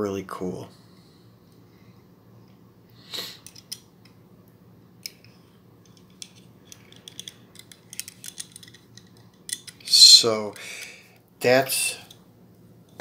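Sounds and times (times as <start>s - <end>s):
model car handling noises: 5.0s - 9.8s.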